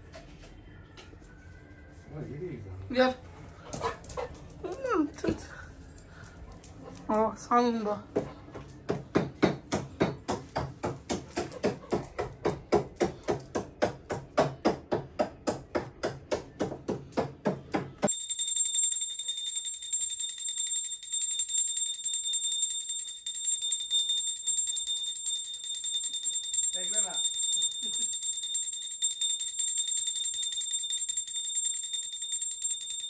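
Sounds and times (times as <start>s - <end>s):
rhythmic percussion: 8.9s - 33.0s
hand bell ringing rapidly: 18.1s - 33.0s.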